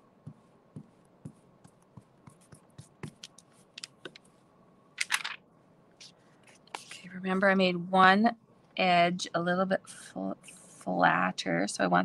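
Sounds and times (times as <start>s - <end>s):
paper rustling: 5.0s - 5.4s.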